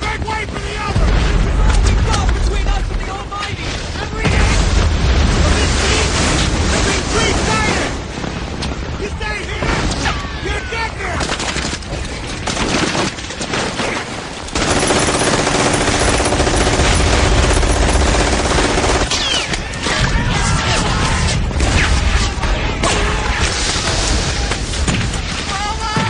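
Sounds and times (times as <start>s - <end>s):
machine guns and rifles firing: 11.1s - 26.0s.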